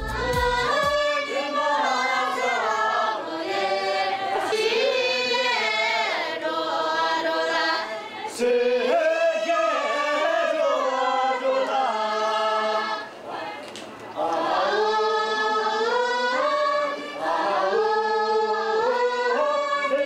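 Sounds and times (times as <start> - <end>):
men chanting: 0.0 - 13.5
women singing unaccompanied: 0.0 - 20.0.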